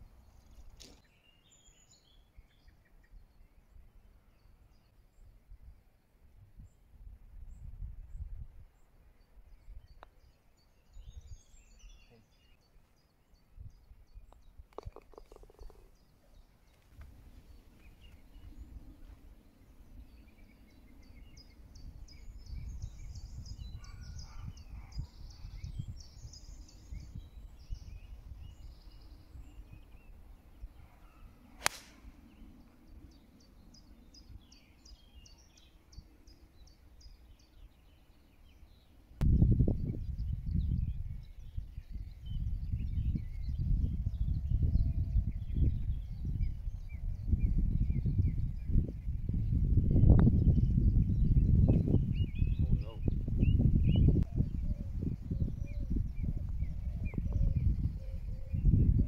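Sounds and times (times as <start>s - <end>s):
birds singing: 0.0s - 5.9s, 7.5s - 59.0s
wind rumbling on microphone: 3.2s - 12.1s, 13.4s - 59.0s
golf club striking ball: 31.6s - 32.1s.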